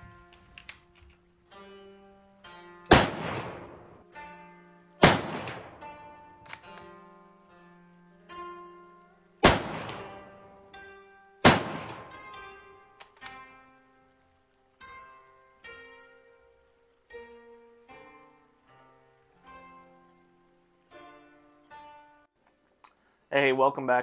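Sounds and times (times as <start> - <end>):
plucked string music: 0.0 - 22.3
rifle shots: 2.9 - 4.0, 5.0 - 6.1, 9.4 - 10.4, 11.4 - 12.4.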